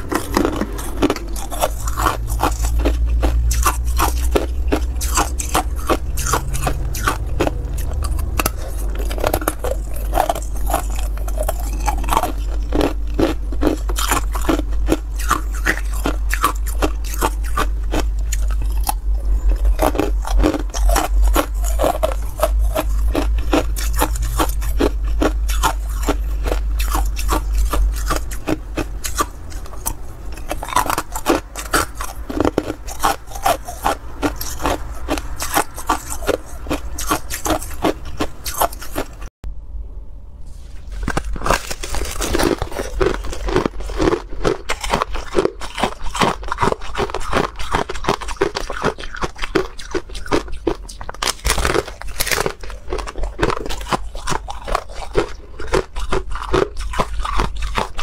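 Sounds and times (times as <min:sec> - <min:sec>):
ice cubes crunched by teeth: 0:00.0 - 0:39.2, 0:41.0 - 0:58.0
low rumble: 0:00.0 - 0:45.6.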